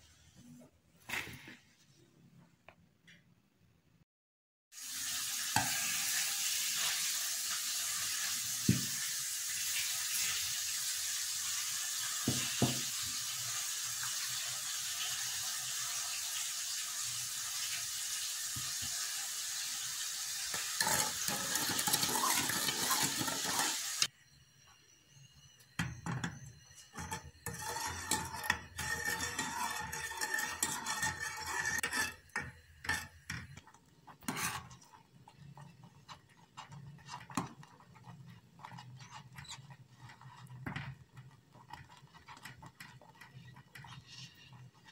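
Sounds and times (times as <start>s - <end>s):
spoon scraping metal saucepan: 20.4s - 24.1s, 26.1s - 44.9s.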